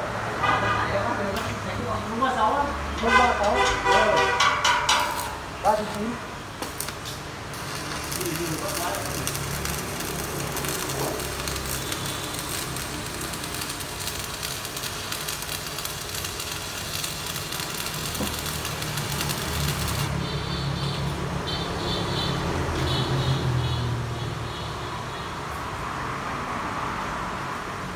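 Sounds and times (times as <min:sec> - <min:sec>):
arc welding crackling: 0:03.4 - 0:21.2.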